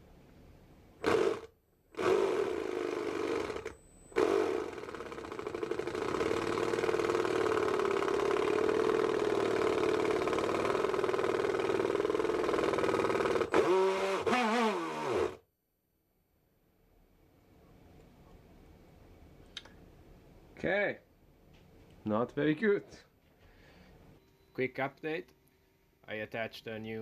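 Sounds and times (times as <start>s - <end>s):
electric motor whirring: 1.0s - 15.4s.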